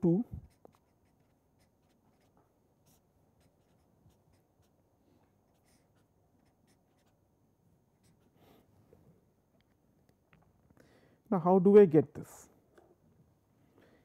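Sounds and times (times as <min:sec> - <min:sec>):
marker writing on paper: 0:00.4 - 0:04.8, 0:05.5 - 0:07.2.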